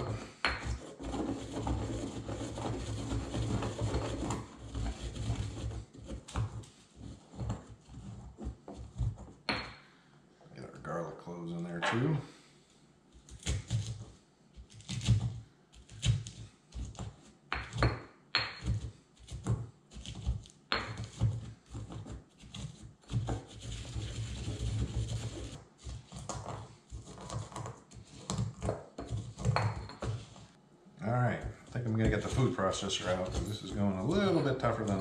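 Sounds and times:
stone pestle pounding in mortar: 15.9s - 19.5s.

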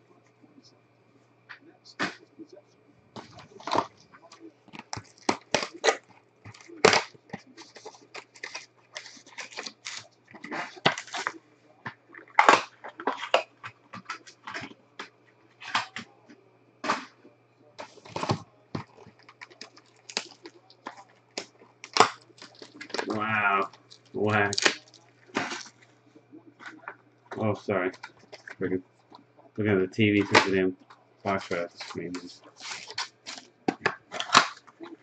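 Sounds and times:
cardboard rustling: 3.1s - 11.4s, 31.3s - 35.0s
plastic wrap crinkling: 3.1s - 14.8s, 17.8s - 29.2s, 30.2s - 35.0s.

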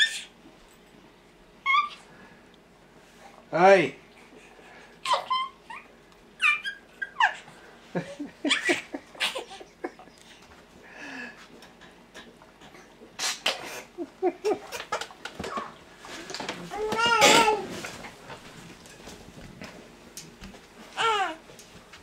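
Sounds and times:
baby laughing and squealing: 0.0s - 0.3s, 1.6s - 2.0s, 5.0s - 7.5s, 8.5s - 9.6s.

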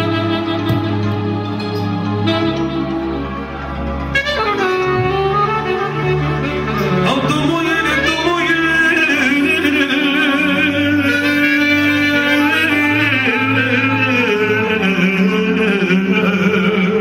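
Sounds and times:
saxophone: 0.0s - 17.0s
steady bass line: 0.0s - 17.0s
man singing with vibrato: 6.7s - 17.0s.

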